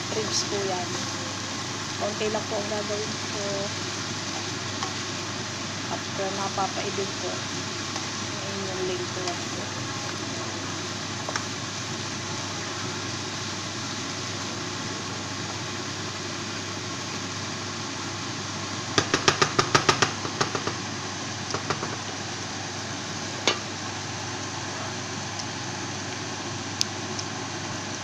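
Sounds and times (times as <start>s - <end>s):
steady hiss: 0.0s - 28.0s
wooden spatula knocking on pan: 18.9s - 20.8s, 21.5s - 22.1s.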